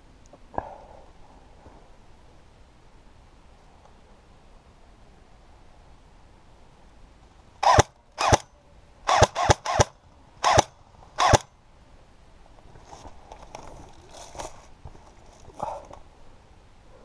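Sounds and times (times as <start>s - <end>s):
airsoft gun shots: 7.6s - 8.5s, 9.1s - 11.5s.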